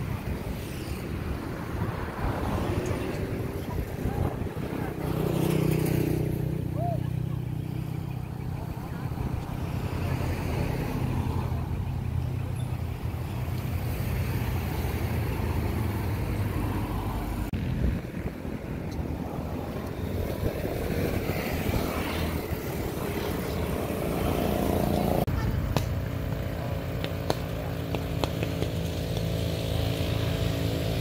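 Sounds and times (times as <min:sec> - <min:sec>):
wind buffeting microphone: 0:00.0 - 0:07.5, 0:11.6 - 0:26.5.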